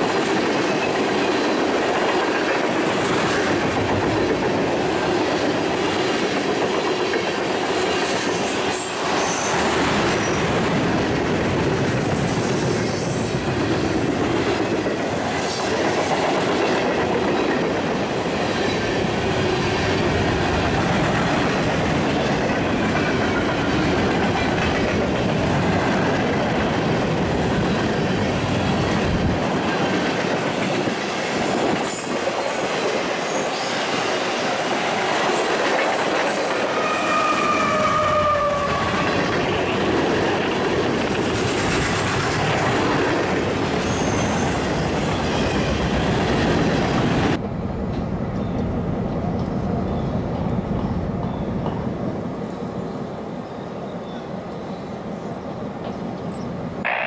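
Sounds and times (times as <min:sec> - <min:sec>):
freight train rumbling past: 0:00.0 - 0:57.0
high wheel squeal: 0:12.0 - 0:13.5, 0:43.8 - 0:46.2.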